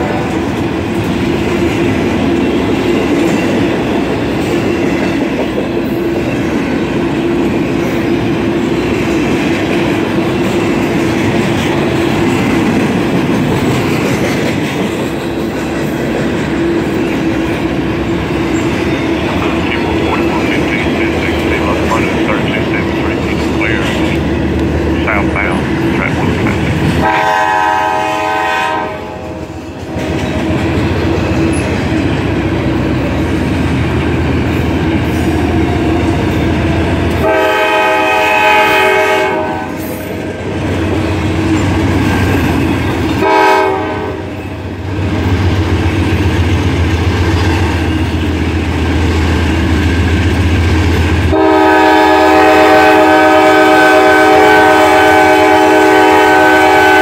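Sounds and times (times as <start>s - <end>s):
train wheels clattering on rail: 0.0s - 28.4s, 29.2s - 56.7s
locomotive air horn blasts: 27.0s - 29.3s, 37.2s - 39.7s, 43.2s - 44.4s, 51.3s - 57.0s.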